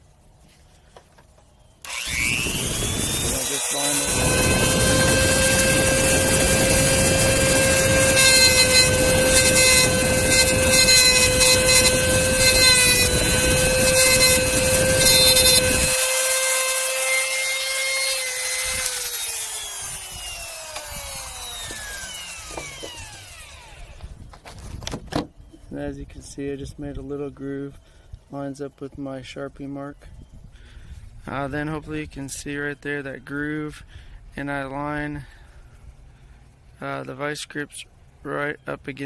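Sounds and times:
rotary tool grinding steel: 1.8s - 24.0s
rotary tool spinning down: 1.8s - 24.1s.

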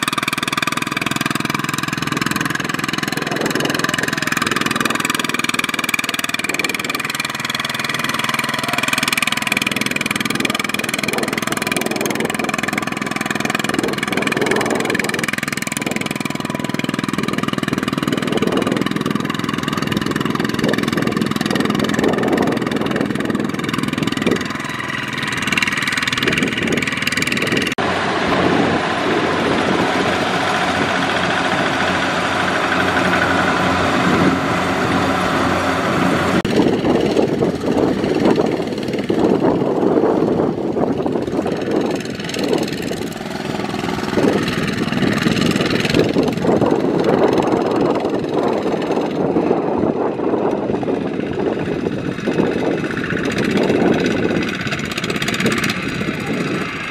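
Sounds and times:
diesel tractor engine under load: 0.0s - 56.9s.

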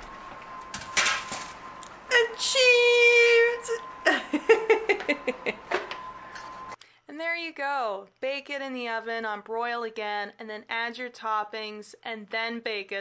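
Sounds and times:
pan and parchment handling noise: 0.6s - 1.7s
woman giggling: 4.0s - 5.8s.

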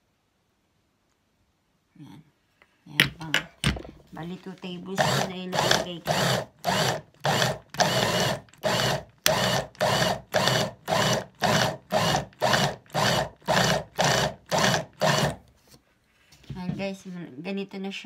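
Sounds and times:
hand blender pulsing whir: 4.9s - 15.4s.

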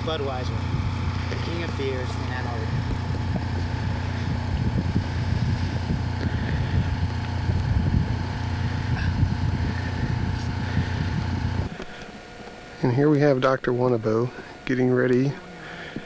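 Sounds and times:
wind buffeting microphone: 0.0s - 11.8s
steady low hum: 0.0s - 16.0s.

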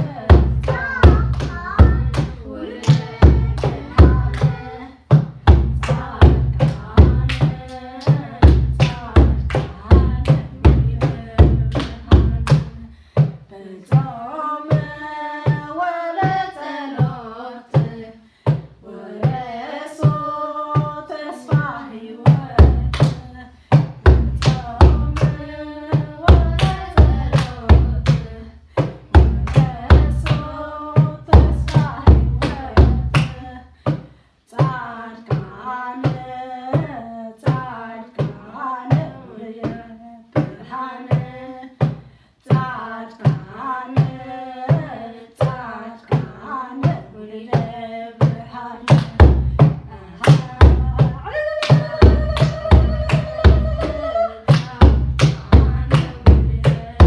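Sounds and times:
children singing a hymn: 0.0s - 4.9s
steady drum beat: 0.0s - 36.2s, 36.8s - 57.0s
hand clapping: 0.6s - 4.6s, 26.6s - 28.2s, 31.6s - 34.0s, 51.6s - 56.8s.

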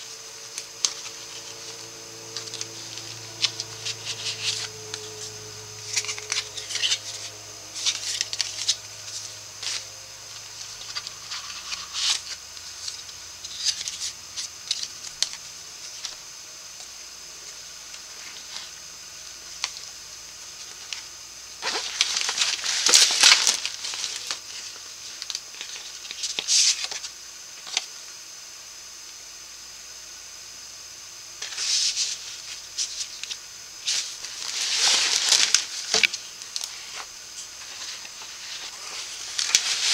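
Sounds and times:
paper rustling and swishing: 31.4s - 39.9s.

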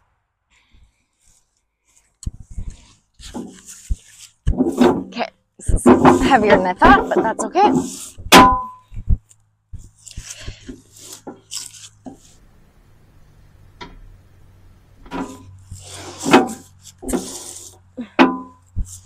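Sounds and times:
metal bucket clanking and scraping: 4.5s - 8.8s, 15.0s - 19.0s.

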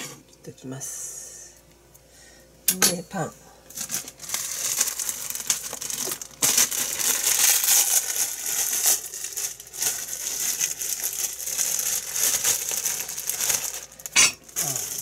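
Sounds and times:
plastic bread bag crinkling: 3.6s - 15.0s.

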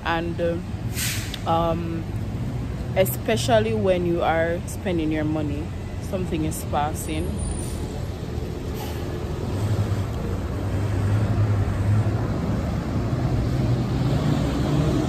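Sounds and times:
truck engine hum passing by: 7.3s - 15.0s.

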